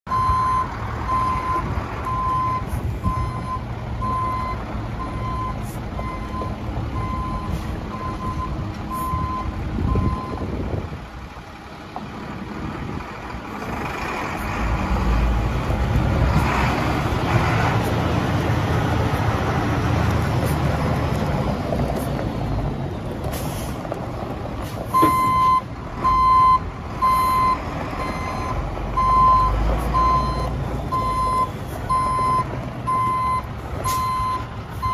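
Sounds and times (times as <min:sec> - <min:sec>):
truck diesel engine running: 0:00.1 - 0:34.9
backup alarm beeping: 0:25.0 - 0:34.9.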